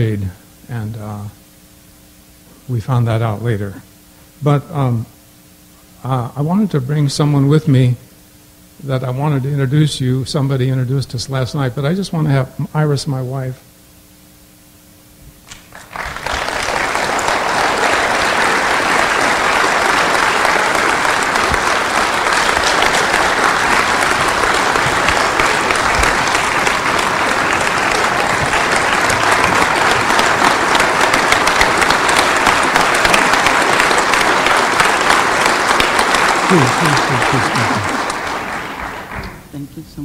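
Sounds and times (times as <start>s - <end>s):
large audience applauding: 15.5s - 39.5s.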